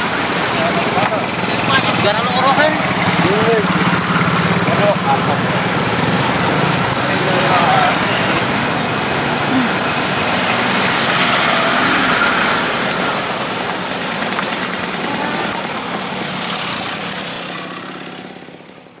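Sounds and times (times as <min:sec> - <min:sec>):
cars driving past: 0:00.0 - 0:19.0
motorcycles driving past: 0:00.0 - 0:19.0.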